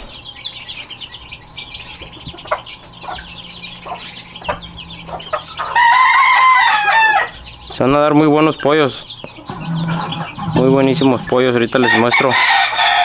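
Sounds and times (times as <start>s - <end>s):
chicks peeping: 0.0s - 13.0s
chicks scratching and pecking dirt: 0.0s - 13.0s
rooster crowing: 4.8s - 7.5s, 9.5s - 13.0s.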